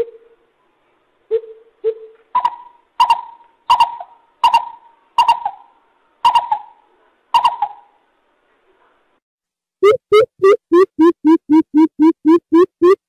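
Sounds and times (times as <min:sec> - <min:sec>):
bird hooting: 0:02.4 - 0:06.8, 0:07.4 - 0:07.9.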